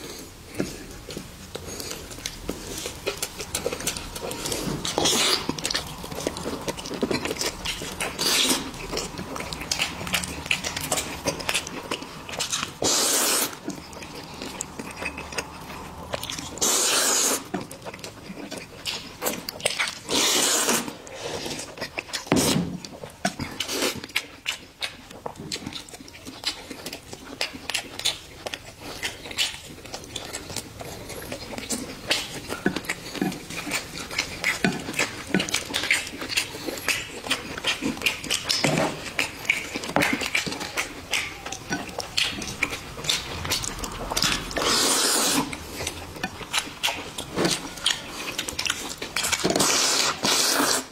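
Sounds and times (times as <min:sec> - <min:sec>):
wet chewing: 0:00.0 - 0:50.9
noodle slurps: 0:01.6 - 0:17.7, 0:18.5 - 0:22.8, 0:31.8 - 0:50.9.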